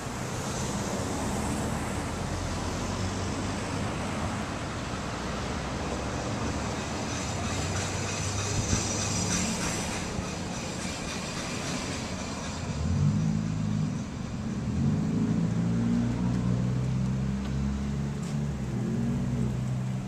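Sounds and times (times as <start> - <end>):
street traffic: 0.0 - 20.0
vehicle engine hum: 0.0 - 20.0.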